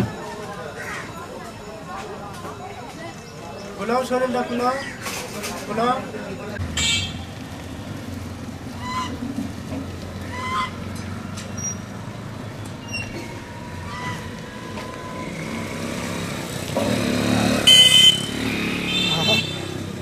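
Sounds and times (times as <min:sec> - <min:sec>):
road traffic passing: 0:00.0 - 0:20.0
goose honking: 0:10.2 - 0:10.8.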